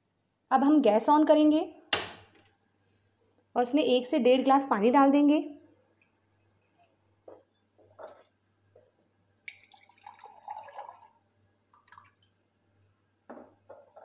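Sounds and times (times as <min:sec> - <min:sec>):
water trickling and dripping: 0:09.4 - 0:12.4.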